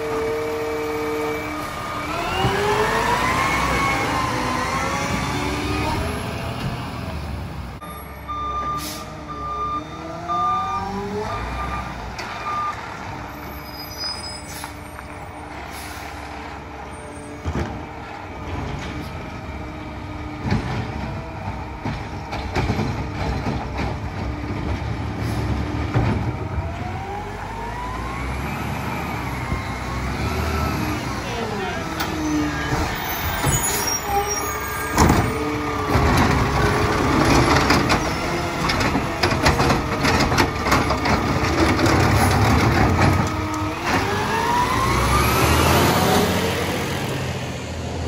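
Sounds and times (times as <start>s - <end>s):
garbage truck engine revving: 0.0s - 7.8s, 15.3s - 48.0s
reversing beeper: 7.8s - 12.8s
air brake releases: 8.8s - 9.2s, 14.0s - 14.9s, 15.7s - 16.2s.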